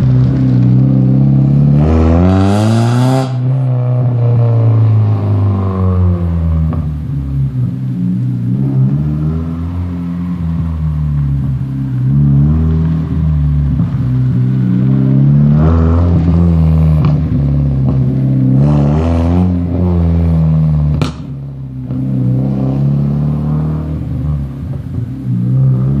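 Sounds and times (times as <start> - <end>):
car engine accelerating: 0.0 - 26.0
exhaust pop: 6.6 - 7.2, 20.8 - 22.3.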